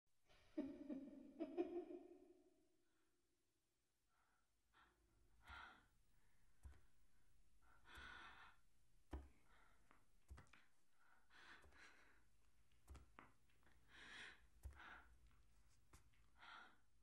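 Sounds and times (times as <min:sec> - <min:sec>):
woman breathing faintly: 0:04.2 - 0:17.0.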